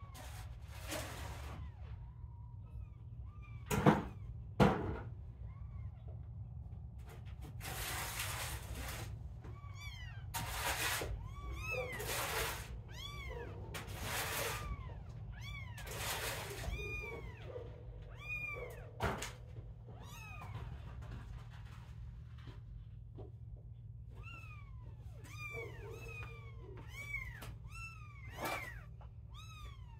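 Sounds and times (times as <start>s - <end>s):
kittens mewing: 9.4s - 21.0s, 24.1s - 29.9s.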